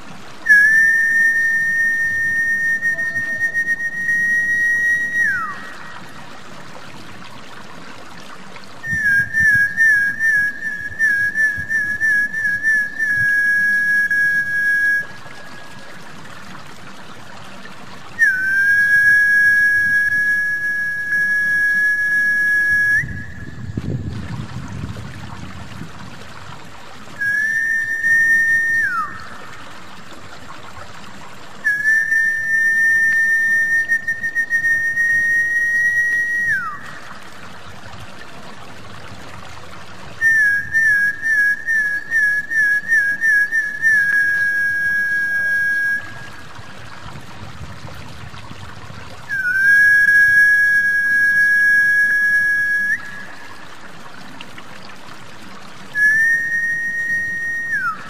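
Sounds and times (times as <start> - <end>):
trickling water: 0.0 - 58.0
long high whistles: 0.4 - 6.0, 8.8 - 15.9, 18.2 - 24.1, 27.2 - 29.6, 31.6 - 37.0, 40.2 - 46.6, 49.3 - 53.6, 55.9 - 58.0.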